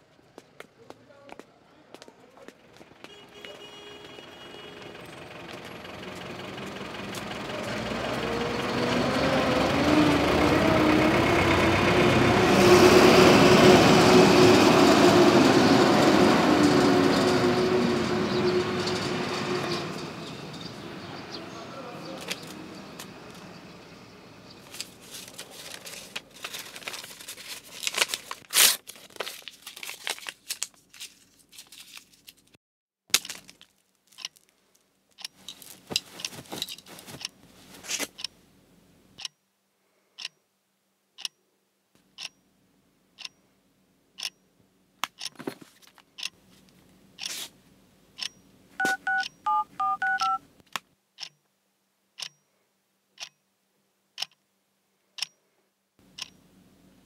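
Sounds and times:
paper rustling and tearing: 24.7 - 34.2, 35.5 - 38.2
clock ticking: 42.2 - 42.4
phone keypad beeps: 48.8 - 50.4.

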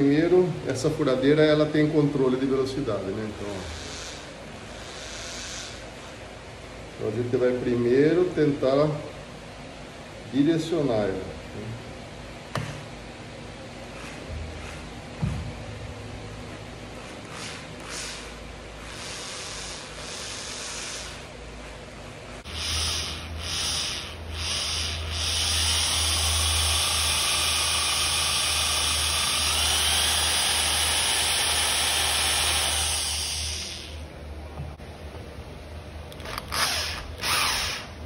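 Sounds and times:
cordless drill boring: 17.0 - 21.2, 22.5 - 34.0, 36.1 - 38.0.

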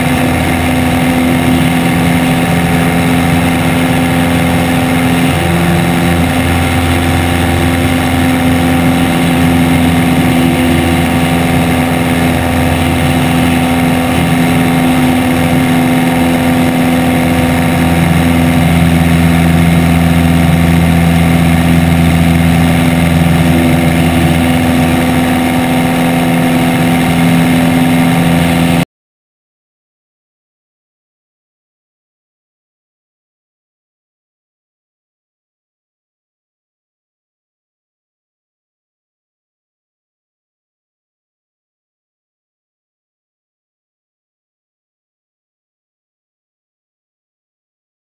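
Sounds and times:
wind noise on microphone: 0.0 - 28.8
propeller plane engine: 0.0 - 28.9.

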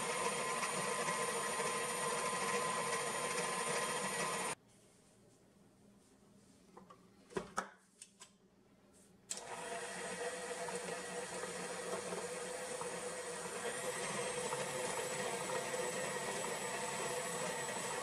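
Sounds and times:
stand mixer motor whining: 0.0 - 4.6, 9.4 - 18.0.

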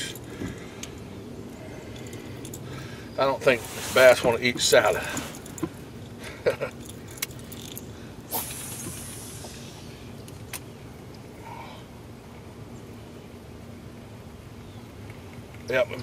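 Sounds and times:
fishing line running off spool: 8.3 - 10.1.

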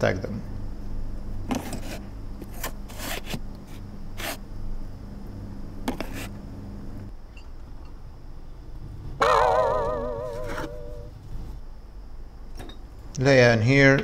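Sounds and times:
steady low hum: 0.0 - 14.0
plastic containers scraping on shelf: 1.5 - 4.4, 5.9 - 6.3.

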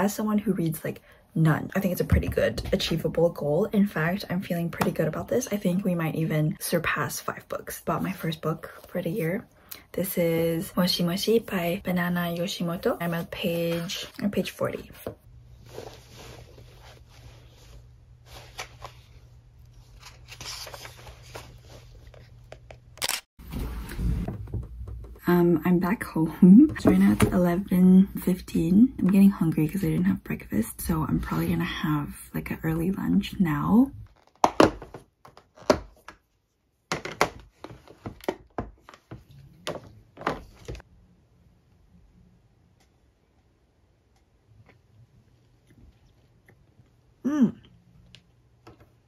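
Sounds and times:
book pages rustling: 15.5 - 22.8.

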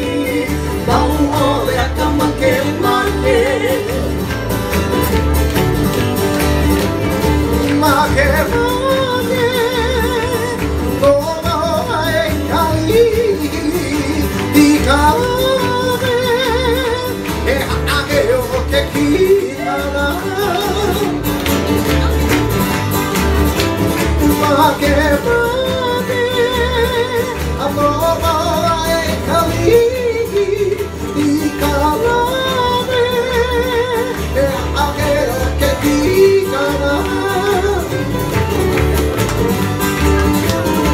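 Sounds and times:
man singing with vibrato: 0.0 - 4.2, 7.6 - 21.2, 24.3 - 38.2
strummed acoustic guitars: 0.0 - 40.9.

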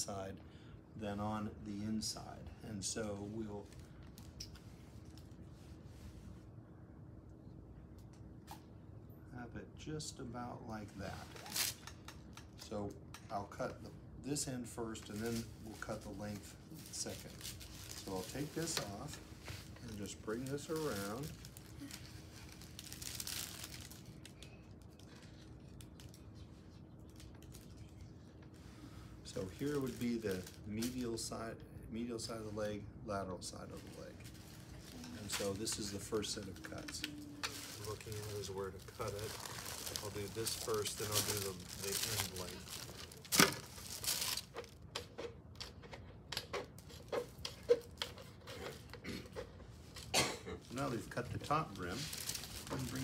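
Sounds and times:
plastic rustling and scratching: 15.0 - 28.6, 29.2 - 31.3, 33.7 - 53.0.

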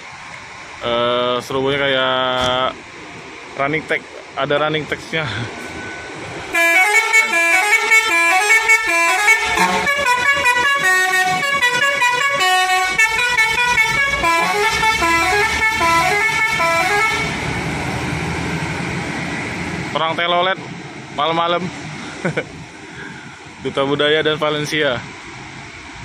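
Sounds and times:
bus air horn playing a melody: 6.5 - 17.4.

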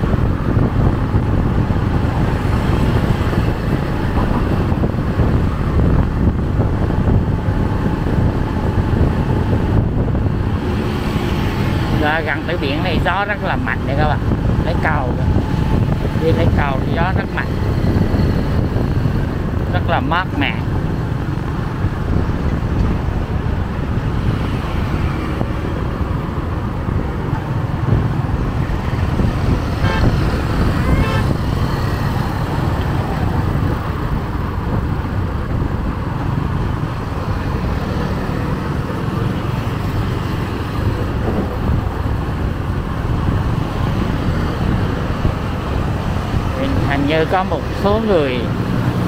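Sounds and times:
road traffic: 0.0 - 49.0
wind buffeting microphone: 0.0 - 49.0
car horn beeps: 29.8 - 30.2, 30.8 - 31.4.

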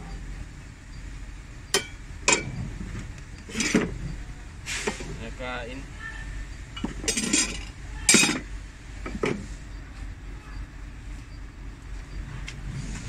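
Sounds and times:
metal plates clinking: 1.8 - 2.6, 3.5 - 4.0, 6.8 - 8.5.

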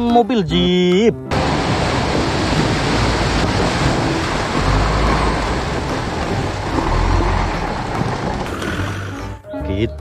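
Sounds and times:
car engine under load: 1.3 - 9.3
water rushing and splashing: 1.3 - 9.3.

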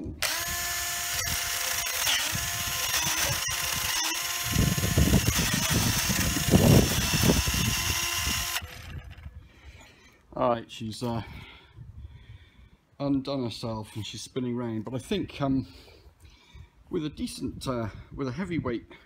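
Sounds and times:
cordless drill motor whine: 0.0 - 9.4.

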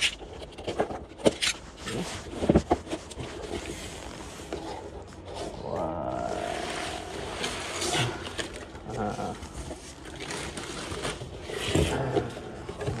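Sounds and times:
knocks and scrapes on cardboard: 0.7 - 4.9.

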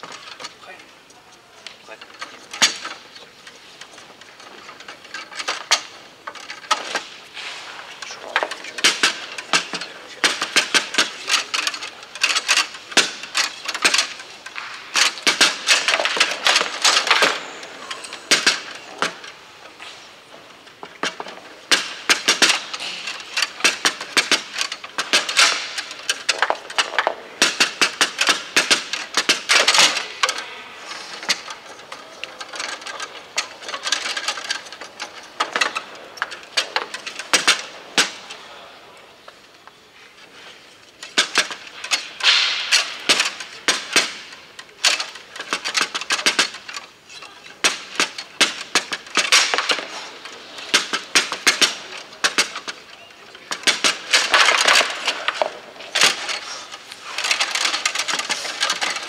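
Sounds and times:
foosball rods knocking: 1.7 - 38.4, 41.0 - 59.0
foosball ball clacking: 6.8 - 19.3, 20.7 - 30.2, 41.0 - 46.7, 47.6 - 59.0.

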